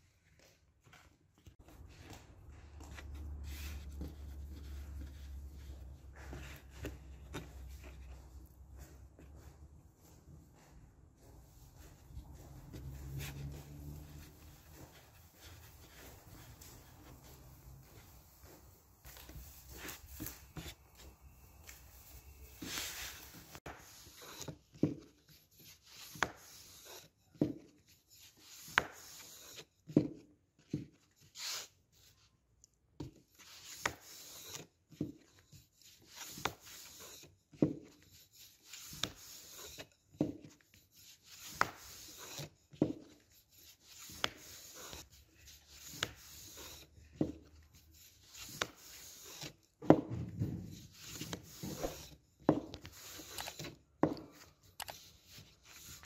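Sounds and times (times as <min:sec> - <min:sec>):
rolling pin rolling dough: 0:22.6 - 0:31.7, 0:33.0 - 0:56.0.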